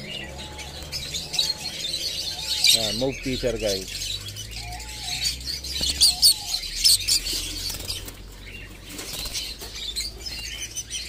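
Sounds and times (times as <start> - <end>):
birds chirping and chattering: 0.0 - 11.0
bird wings flapping: 8.9 - 9.8.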